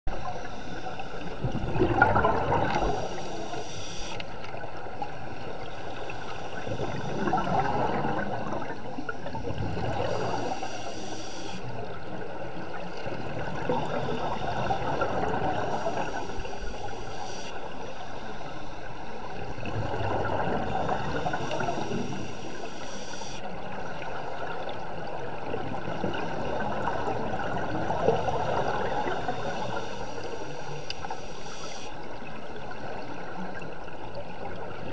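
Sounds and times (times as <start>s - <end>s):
regulator inhale hiss: 0.1s - 1.5s, 2.7s - 4.4s, 5.6s - 7.5s, 8.7s - 11.8s, 13.8s - 19.4s, 20.8s - 23.5s, 28.0s - 32.7s
exhaled bubbles rushing: 1.2s - 3.2s, 6.5s - 10.5s, 12.8s - 16.4s, 19.4s - 22.0s.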